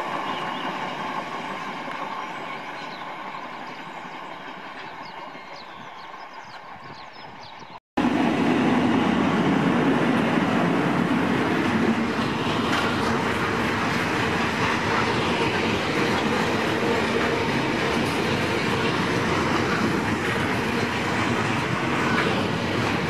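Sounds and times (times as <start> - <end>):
faint train sound: 0.0 - 23.0
freight train passing: 0.0 - 23.0.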